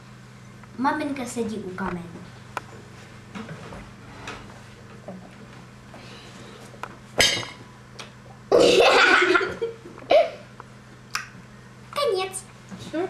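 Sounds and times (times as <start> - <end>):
girl laughing: 8.7 - 10.4.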